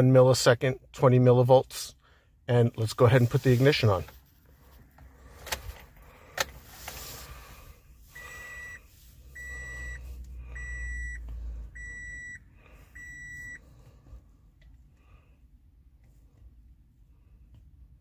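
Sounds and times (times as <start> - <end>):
dashboard warning chime beeping: 8.1 - 13.7.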